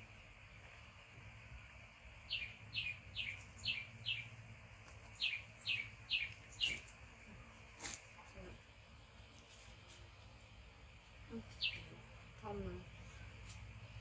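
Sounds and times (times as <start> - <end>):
bird chirping: 2.2 - 7.0, 11.3 - 12.1.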